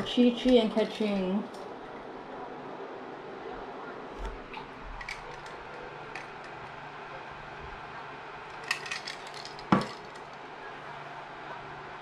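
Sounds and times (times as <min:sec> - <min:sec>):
cup clinking: 0:08.6 - 0:10.2.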